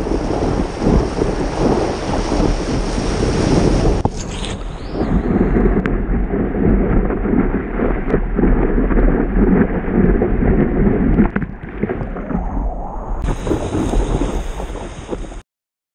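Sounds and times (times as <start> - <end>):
wind rushing over camera: 0.0 - 15.4
breaking whitewater: 13.2 - 15.4.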